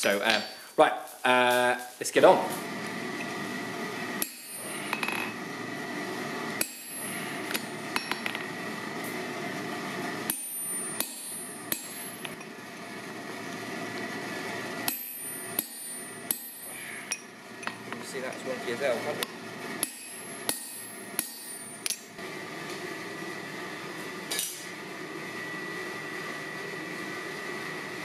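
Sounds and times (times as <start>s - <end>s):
steady hum: 0.0s - 28.0s
hammer striking metal on anvil: 4.2s - 5.3s, 6.6s - 8.4s, 10.3s - 12.5s, 14.8s - 18.5s, 19.8s - 22.1s.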